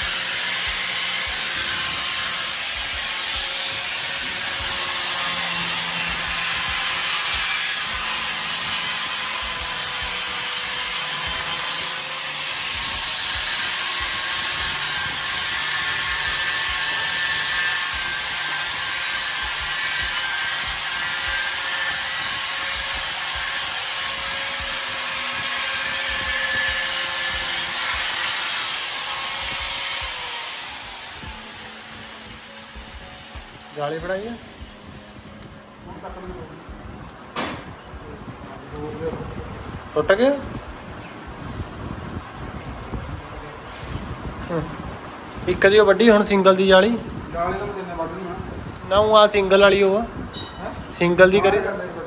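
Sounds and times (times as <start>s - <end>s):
angle grinder grinding steel: 0.0s - 36.2s.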